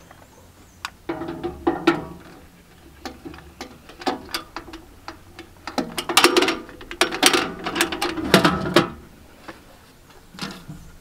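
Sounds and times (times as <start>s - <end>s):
metal can clicking and clanking: 1.0s - 9.1s.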